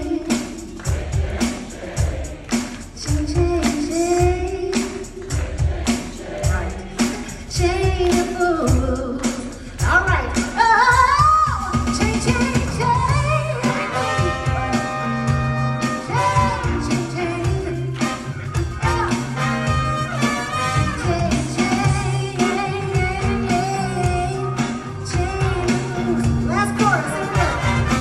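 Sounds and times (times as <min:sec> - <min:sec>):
woman singing: 0:00.0 - 0:00.8, 0:03.0 - 0:05.3, 0:07.4 - 0:14.9, 0:15.8 - 0:18.2, 0:20.6 - 0:27.6
live band playing: 0:00.0 - 0:28.0
trombone and trumpet: 0:13.2 - 0:23.5, 0:25.4 - 0:28.0.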